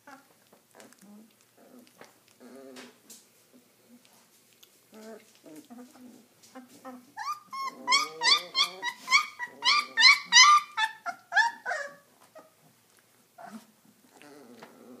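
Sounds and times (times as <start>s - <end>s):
puppies crying: 6.9s - 12.6s.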